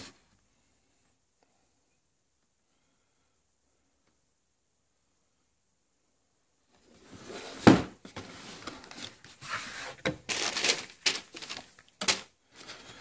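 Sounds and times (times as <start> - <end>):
tissue paper rustling: 8.3 - 12.2.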